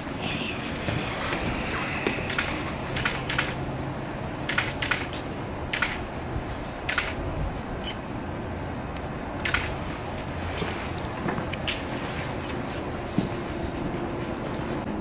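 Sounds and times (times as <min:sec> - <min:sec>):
camera shutters clicking: 0:02.2 - 0:03.6, 0:04.5 - 0:06.0, 0:06.9 - 0:07.2, 0:09.4 - 0:09.8.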